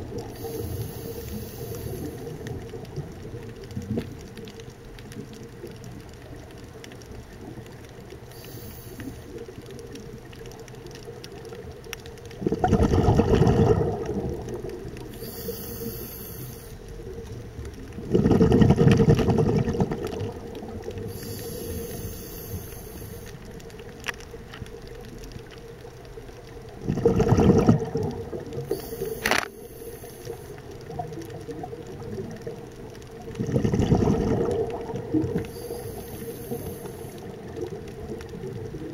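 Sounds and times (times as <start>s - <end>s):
faint high hisses: 0.4s - 2.4s, 8.3s - 9.4s, 15.1s - 16.9s, 21.1s - 23.4s, 28.7s - 30.6s, 35.5s - 37.3s
bubbling underwater exhalations: 12.3s - 16.0s, 17.9s - 22.0s, 26.8s - 29.2s, 33.2s - 38.9s.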